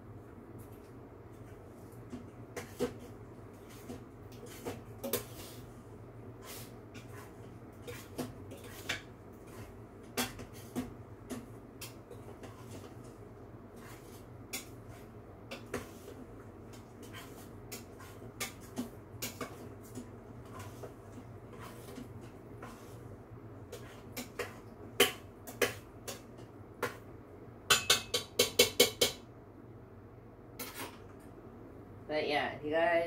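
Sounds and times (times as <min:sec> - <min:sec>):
spoon clinking in metal pot: 0:27.7 - 0:29.2.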